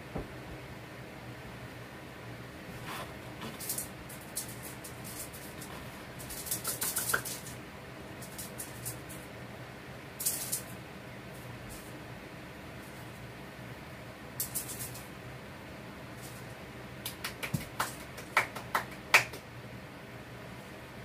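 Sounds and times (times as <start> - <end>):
cat toy rattling: 3.4 - 7.6, 8.2 - 9.2, 10.2 - 10.7, 14.4 - 15.1.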